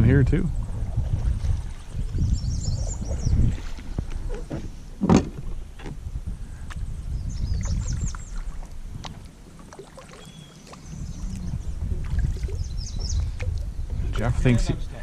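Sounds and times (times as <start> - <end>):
water lapping at hull: 0.5 - 5.9, 6.6 - 15.0
paddle strokes splashing water: 7.6 - 14.2.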